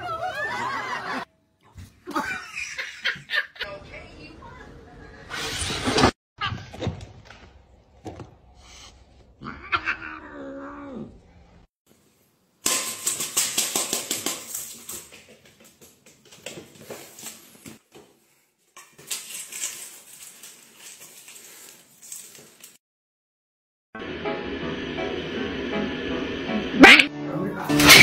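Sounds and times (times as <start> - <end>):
cat yowling: 9.4 - 11.1.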